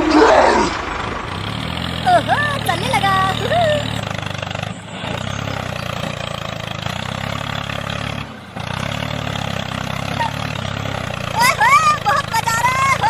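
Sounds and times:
tractor engine chugging: 0:00.8 - 0:13.0.

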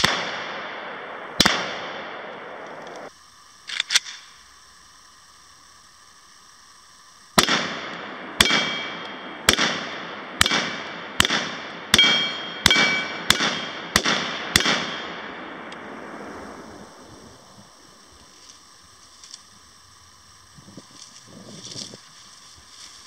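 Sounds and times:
rifle shots with echo: 0:00.0 - 0:02.8, 0:07.4 - 0:15.9.

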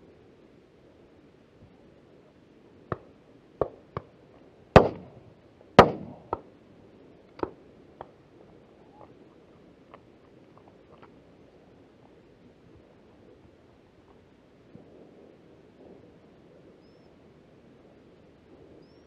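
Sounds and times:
close shotgun shots: 0:04.8 - 0:05.2, 0:05.8 - 0:06.4
distant shotgun shots: 0:04.8 - 0:06.5.

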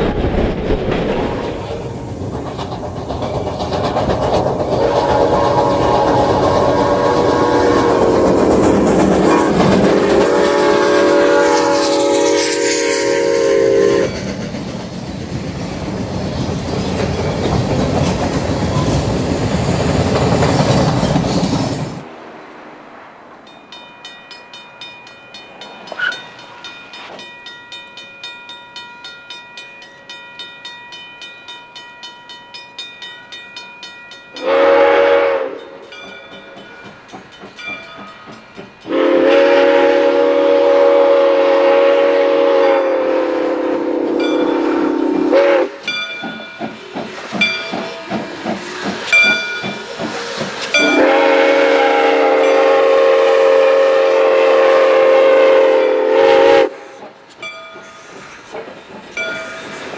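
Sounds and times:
train rumbling and clattering: 0:00.0 - 0:59.9
chiming steam whistle: 0:04.7 - 0:14.4, 0:23.5 - 0:58.3
railroad crossing bell ringing: 0:13.8 - 0:14.5, 0:23.4 - 0:39.8, 0:44.1 - 0:50.0, 0:50.6 - 0:53.2, 0:57.3 - 0:58.5, 0:59.1 - 0:59.9.

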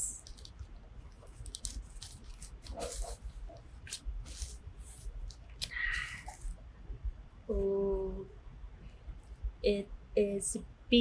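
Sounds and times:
plastic wrapping rustling: 0:00.2 - 0:06.6.

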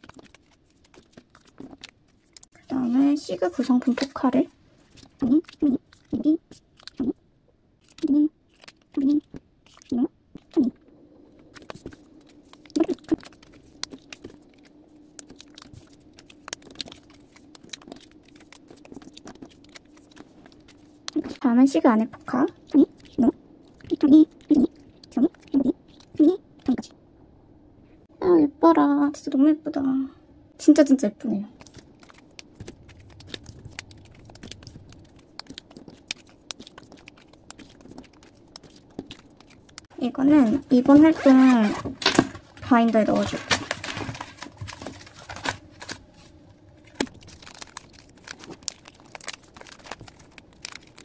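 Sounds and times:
packaging clicks and rustles: 0:11.3 - 0:21.4, 0:31.6 - 0:51.0.

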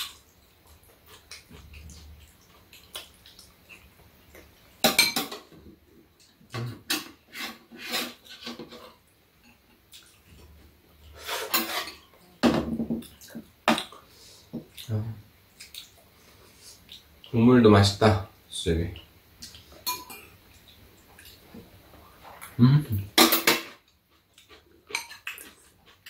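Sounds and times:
utensils clinking against bowls: 0:19.8 - 0:20.4.

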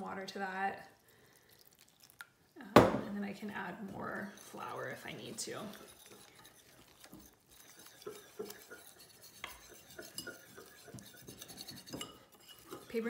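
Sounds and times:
whisk scraping bowl: 0:03.3 - 0:13.0.

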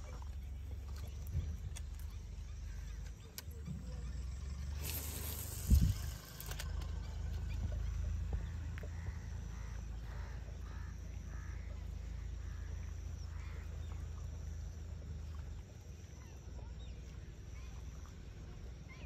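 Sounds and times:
low steady rumble: 0:00.0 - 0:19.0.

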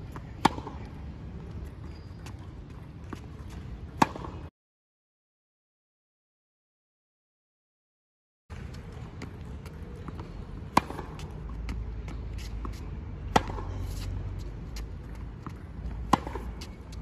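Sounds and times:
shoes on the court: 0:00.0 - 0:04.5, 0:08.5 - 0:17.0
tennis racket striking ball: 0:03.5 - 0:04.4, 0:10.1 - 0:14.1, 0:14.7 - 0:17.0.

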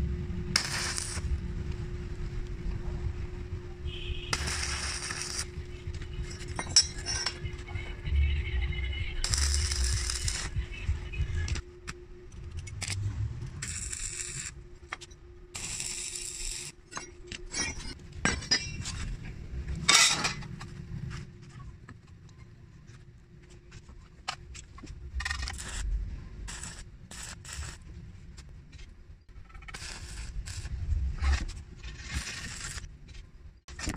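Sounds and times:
welding arc crackling: 0:00.3 - 0:01.8, 0:04.3 - 0:07.5, 0:09.2 - 0:11.6, 0:12.8 - 0:14.6, 0:15.5 - 0:16.8, 0:25.2 - 0:25.9, 0:26.5 - 0:27.9, 0:29.4 - 0:31.1, 0:32.0 - 0:32.9
metal clinking and scraping on concrete: 0:04.4 - 0:07.8, 0:15.8 - 0:20.7.

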